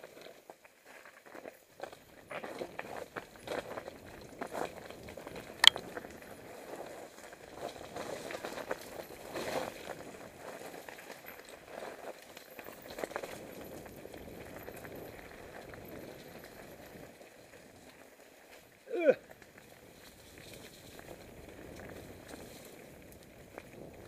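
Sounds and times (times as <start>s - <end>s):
bike tyres on dirt: 6.3s - 24.0s.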